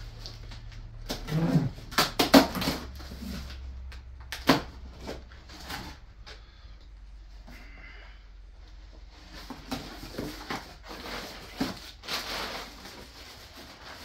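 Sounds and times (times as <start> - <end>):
packing paper rustling: 9.1 - 14.0.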